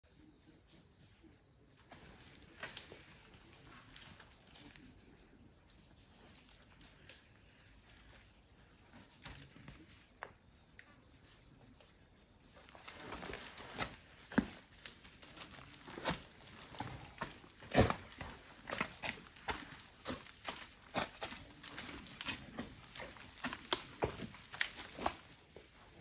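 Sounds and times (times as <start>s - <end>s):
high-pitched insect trill: 0.1s - 26.0s
footsteps on cracked mud: 12.8s - 25.6s.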